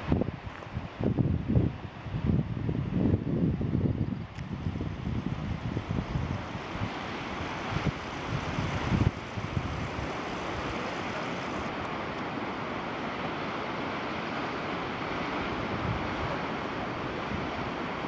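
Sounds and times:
wind blowing over microphone: 0:00.0 - 0:12.1, 0:15.3 - 0:18.0
sea surf: 0:04.4 - 0:18.0.

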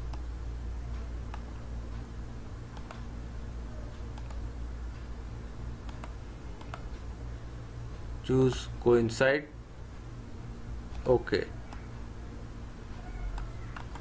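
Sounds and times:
steady low hum: 0:00.0 - 0:14.0
computer mouse clicking: 0:01.2 - 0:02.0, 0:02.7 - 0:03.1, 0:04.0 - 0:04.4, 0:05.8 - 0:07.0, 0:10.9 - 0:11.9, 0:13.0 - 0:14.0.

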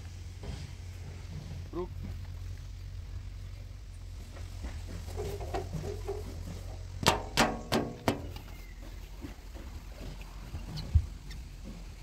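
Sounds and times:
low steady hum: 0:00.0 - 0:12.0
sharp knocks on metal bodywork: 0:07.0 - 0:08.5.

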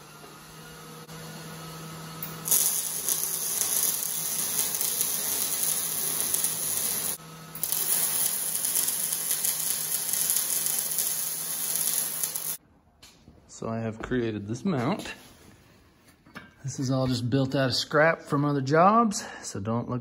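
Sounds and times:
welder arc crackling and hissing: 0:02.2 - 0:12.6.

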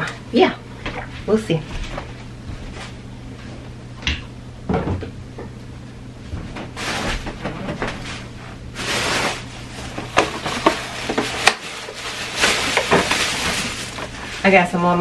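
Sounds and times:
plastic bag rustling: 0:06.7 - 0:15.0.

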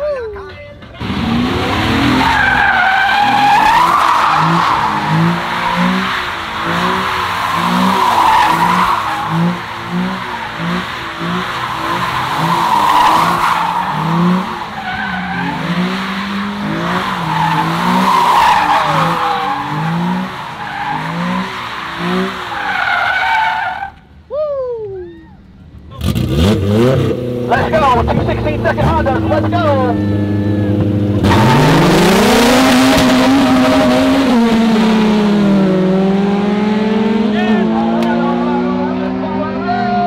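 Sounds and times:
tyres squealing: 0:00.8 - 0:24.1
car engine revving: 0:00.8 - 0:24.2, 0:25.8 - 0:40.0.

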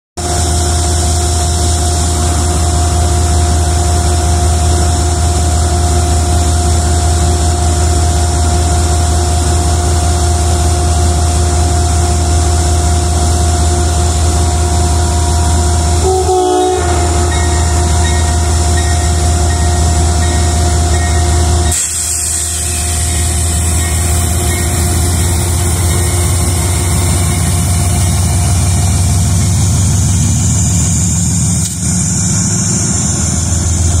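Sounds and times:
diesel locomotive engine hum: 0:00.2 - 0:34.0
air hiss: 0:21.7 - 0:26.6.

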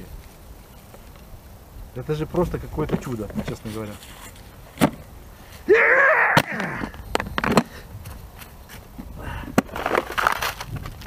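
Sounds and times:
person grunting: 0:05.7 - 0:06.9
plastic box cracking on ground: 0:06.3 - 0:07.7, 0:09.6 - 0:11.0.

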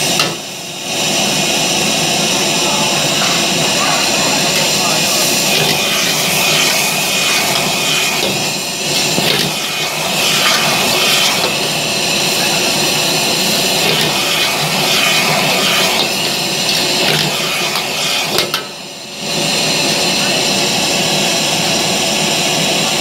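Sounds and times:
gas burner roaring: 0:00.0 - 0:23.0
food sizzling in a wok: 0:02.4 - 0:19.8.

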